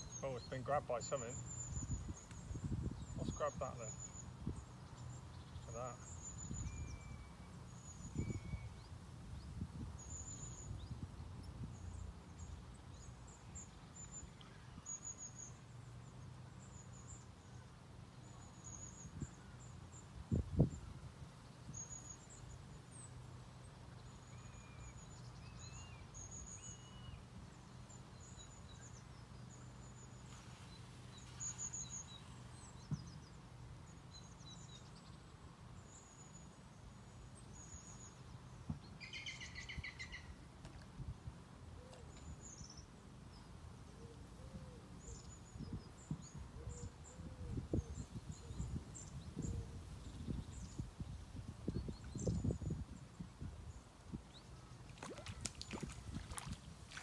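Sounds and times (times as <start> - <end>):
small birds chirping: 0.0 - 11.0, 45.0 - 52.9, 54.3 - 57.0.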